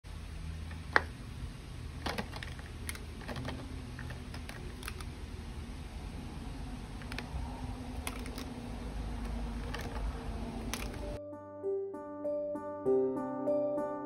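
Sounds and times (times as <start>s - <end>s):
steady low hum: 0.1s - 11.2s
plastic markers clicking: 2.0s - 5.2s, 6.9s - 11.2s.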